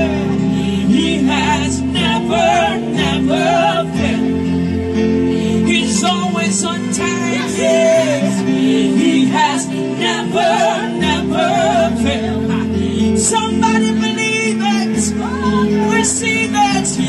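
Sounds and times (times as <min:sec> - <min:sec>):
women singing gospel runs: 0:00.0 - 0:04.3, 0:07.2 - 0:12.6
sustained keyboard chords: 0:00.0 - 0:17.0.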